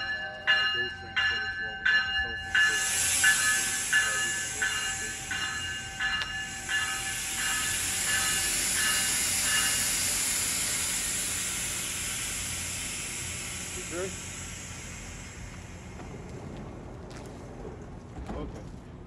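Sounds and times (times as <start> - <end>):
train door warning beeps: 0.0 - 10.3
train air hiss: 2.3 - 16.9.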